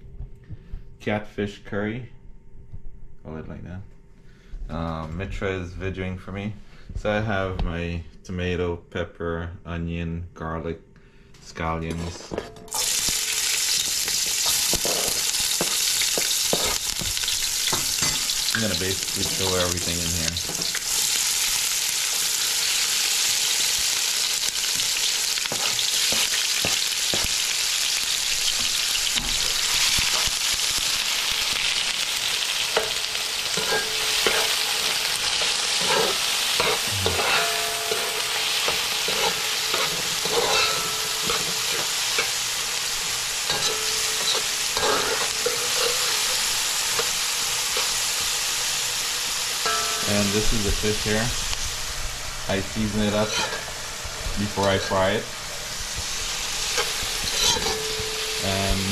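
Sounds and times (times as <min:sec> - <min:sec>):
metal spoon scraping a pan: 0:12.0 - 0:21.2, 0:24.2 - 0:27.8, 0:28.6 - 0:31.0, 0:32.6 - 0:48.0, 0:52.9 - 0:53.9, 0:54.6 - 0:55.2, 0:56.6 - 0:58.9
vegetables sizzling in oil: 0:12.7 - 0:58.9.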